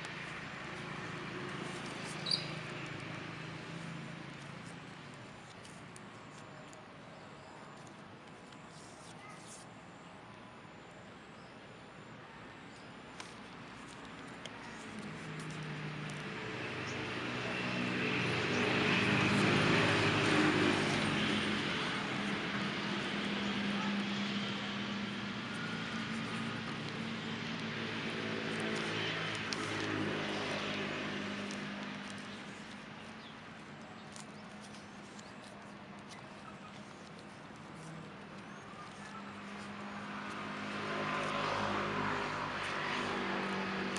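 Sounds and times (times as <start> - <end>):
engine humming: 14.6 - 43.9.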